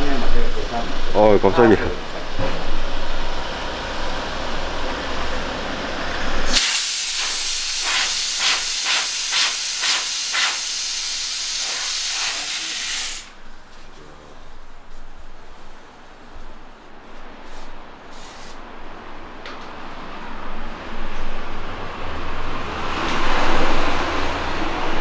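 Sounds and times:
compressed air rushing into tyre: 0:06.2 - 0:13.4, 0:14.9 - 0:18.6
high hiss of air at valve: 0:06.5 - 0:13.4, 0:17.4 - 0:18.6.

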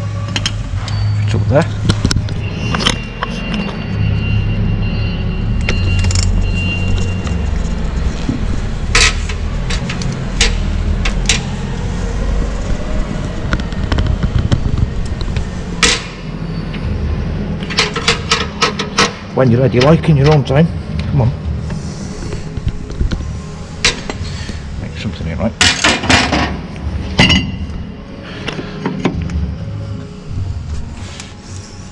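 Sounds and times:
steady low rumble: 0:00.0 - 0:31.9
metal clanks and knocks: 0:08.3 - 0:11.6, 0:15.8 - 0:16.2, 0:17.6 - 0:20.6, 0:25.6 - 0:27.8.

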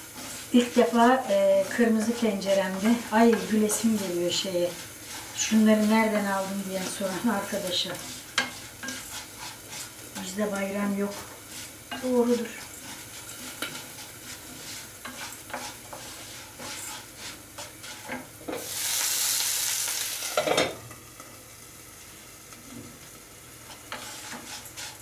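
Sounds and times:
utensil scraping pan: 0:00.0 - 0:18.8, 0:23.7 - 0:25.0
chicken sizzling in a frying pan: 0:00.0 - 0:25.0.

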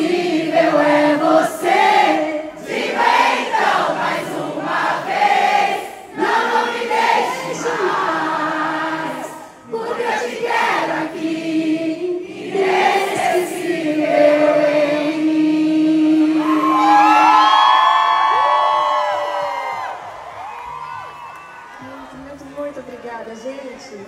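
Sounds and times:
crowd singing along: 0:00.0 - 0:18.2
woman singing: 0:13.9 - 0:17.4.

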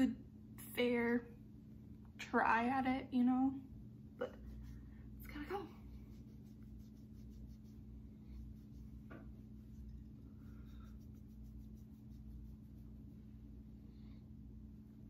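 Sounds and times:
low steady hum: 0:00.0 - 0:15.0
makeup wipe rubbing across face: 0:04.2 - 0:13.5.

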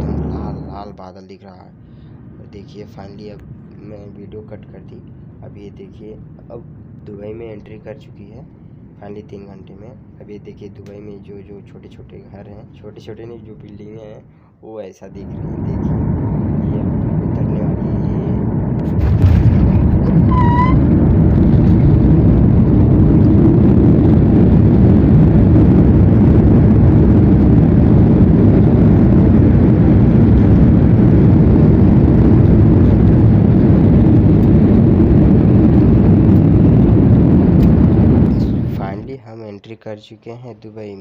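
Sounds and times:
jet engines and rushing air: 0:00.0 - 0:01.0, 0:15.1 - 0:39.1.

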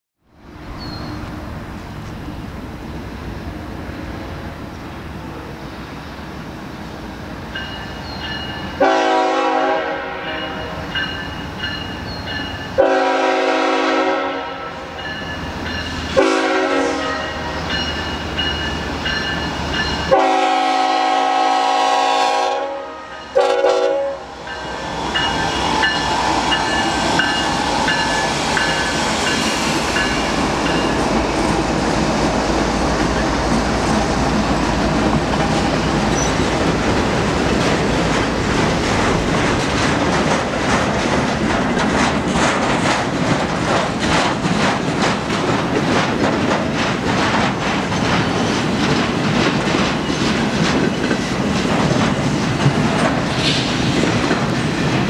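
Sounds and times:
train rumbling past: 0:00.3 - 0:55.0
crossing warning bells ringing: 0:07.4 - 0:13.8, 0:14.4 - 0:21.2, 0:23.0 - 0:31.2
locomotive air horn blasts: 0:08.8 - 0:10.8, 0:12.8 - 0:15.0, 0:16.1 - 0:17.6, 0:20.1 - 0:24.4
wheels clattering over rails: 0:33.0 - 0:55.0.

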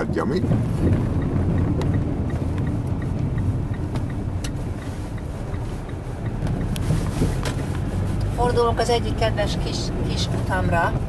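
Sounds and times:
car engine and tyre rumble: 0:00.0 - 0:11.0
turn indicator ticking: 0:00.0 - 0:11.0.

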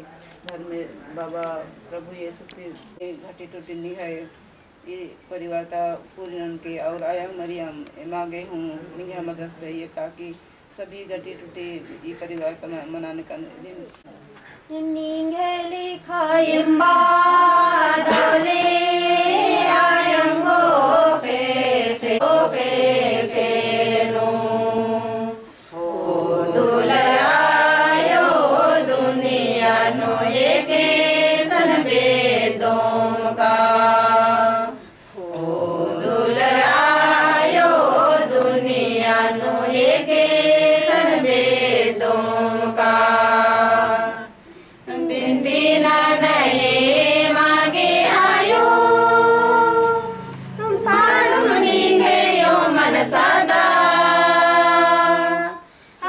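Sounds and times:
group singing a hymn: 0:15.9 - 0:55.8.

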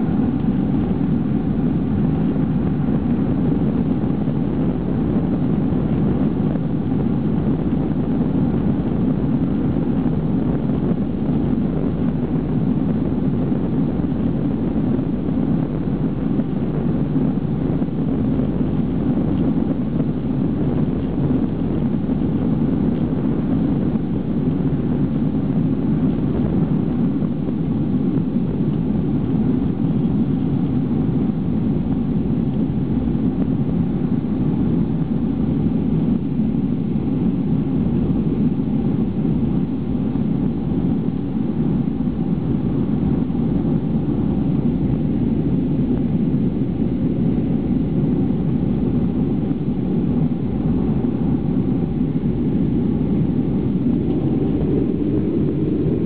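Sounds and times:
jet engines loud low rumble: 0:00.0 - 0:56.0.

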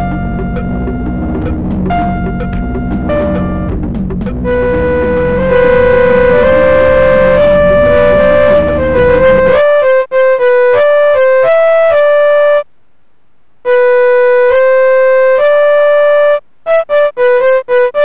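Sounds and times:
electronic keyboard melody: 0:00.0 - 0:12.7, 0:13.6 - 0:18.0.

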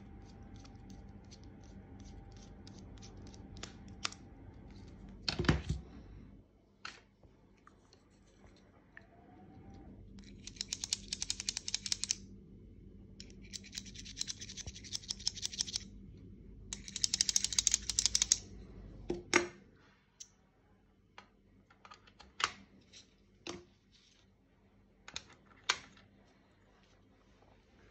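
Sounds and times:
plastic tool parts clicking: 0:10.2 - 0:12.2, 0:13.2 - 0:15.8, 0:16.7 - 0:18.4.

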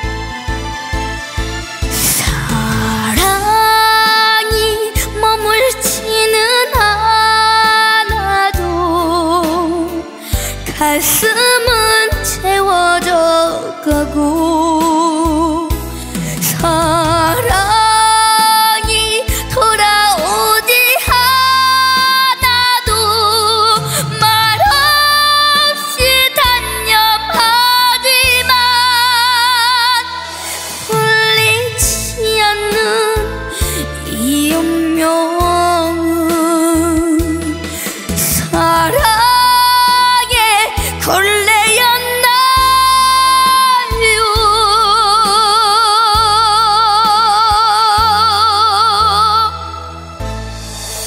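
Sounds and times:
instrumental backing track: 0:00.0 - 0:51.0
girl singing into microphone: 0:02.0 - 0:15.8, 0:16.4 - 0:37.6, 0:38.2 - 0:49.8.

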